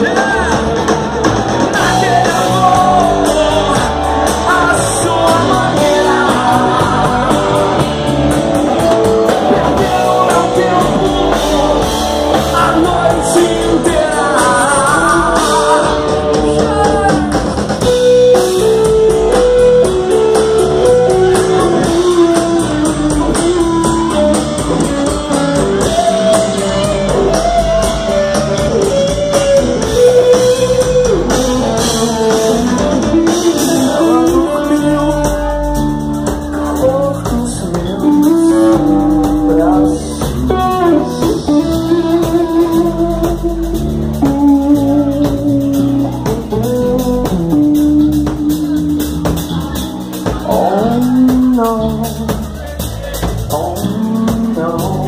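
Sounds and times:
rock band playing: 0.0 - 55.0.

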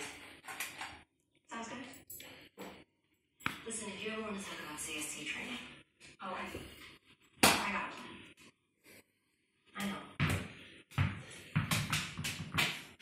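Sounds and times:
ball bouncing on wooden floor: 9.8 - 13.0.

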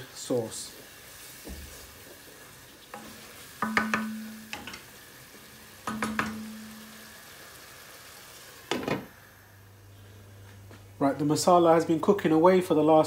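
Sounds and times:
low sizzle of frying spices: 0.0 - 13.0
wooden spoon knocking on frying pan: 3.0 - 4.8, 5.8 - 6.9.

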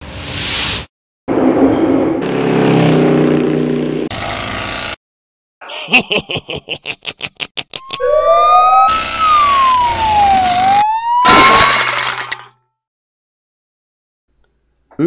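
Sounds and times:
swish: 0.0 - 0.9.

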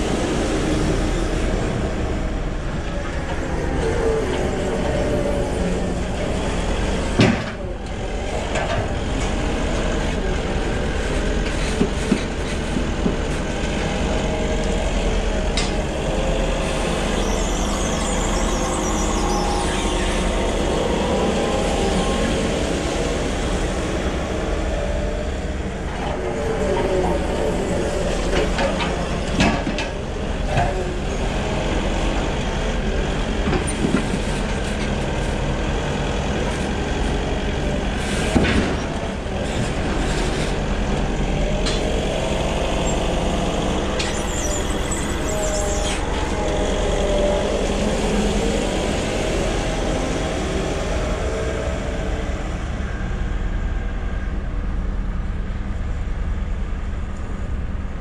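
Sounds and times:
forklift engine running: 0.0 - 58.0
forklift whine: 0.0 - 58.0.

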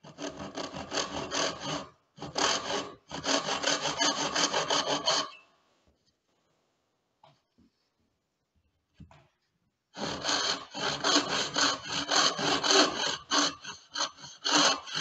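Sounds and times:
hand saw rasping through wood: 0.0 - 5.4, 10.0 - 15.0.

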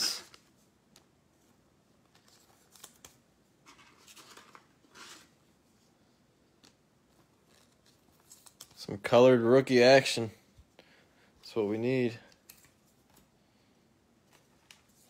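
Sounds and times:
cards and wrappers rustling: 1.4 - 9.1, 11.9 - 13.4.

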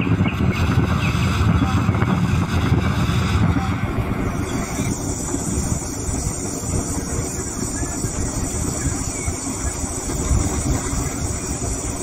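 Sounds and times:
car road and engine noise: 0.0 - 12.0
wind buffeting microphone: 0.0 - 12.0.

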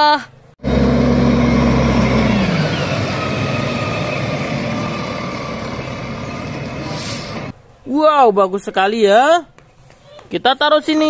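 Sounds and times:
garbage truck engine passing: 0.6 - 7.6.

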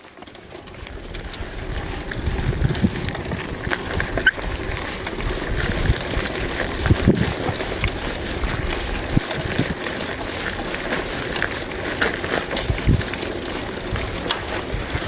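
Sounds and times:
bike and stones clicking: 0.0 - 15.0
bike tyres rolling on gravel: 0.0 - 15.0
wind buffeting microphone: 0.6 - 15.0.

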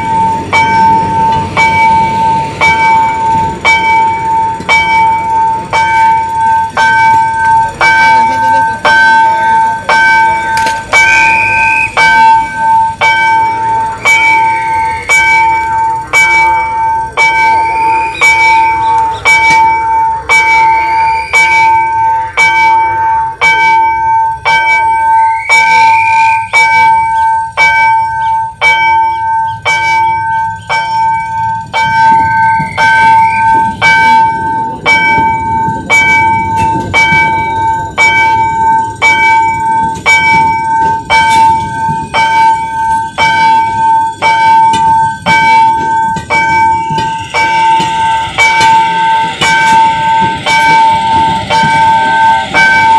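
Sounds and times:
railroad crossing bell ringing: 0.0 - 52.9
train rumbling past: 0.0 - 52.9.

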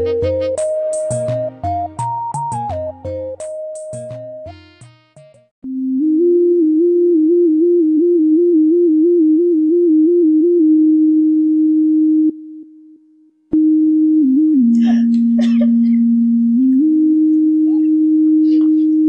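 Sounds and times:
trilling synthesizer tone: 5.6 - 11.3.

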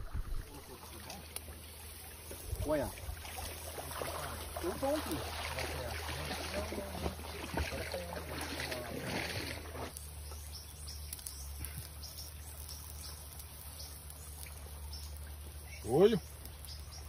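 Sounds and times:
low rumble: 0.0 - 0.8
river water rushing past rocks: 0.0 - 1.0.

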